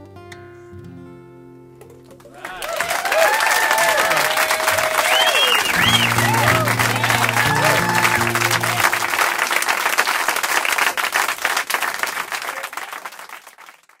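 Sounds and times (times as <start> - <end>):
audience applause: 2.2 - 14.0
cheers and whistles: 2.3 - 10.0
live song ending: 3.7 - 10.7.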